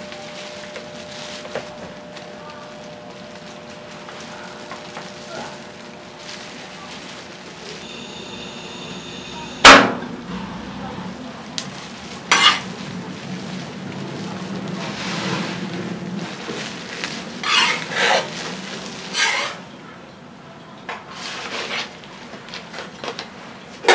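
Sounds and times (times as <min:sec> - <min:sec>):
metal spatula scraping a griddle: 0:12.3 - 0:12.7, 0:17.4 - 0:19.6, 0:21.1 - 0:22.0.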